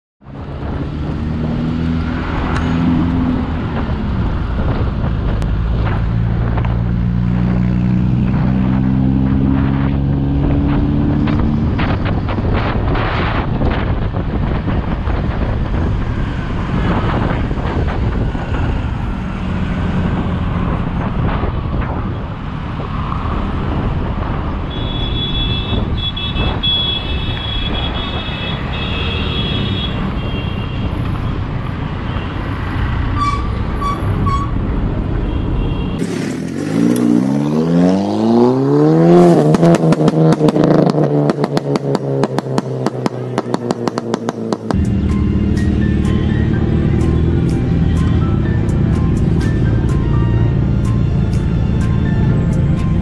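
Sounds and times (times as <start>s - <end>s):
traffic noise: 0.2s - 53.0s
wind on the microphone: 8.4s - 24.7s.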